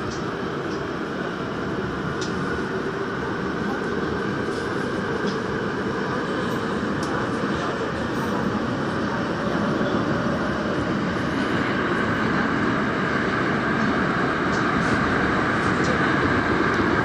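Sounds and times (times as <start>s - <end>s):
train rumbling in a tunnel: 0.0s - 17.0s.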